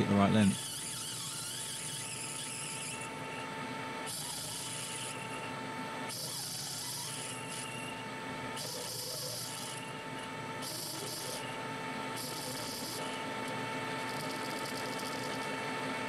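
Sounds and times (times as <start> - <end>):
metal lathe whining: 0.0 - 16.0
tool bit scraping brass: 0.5 - 3.5, 4.1 - 5.5, 6.1 - 8.0, 8.6 - 11.6, 12.2 - 15.6.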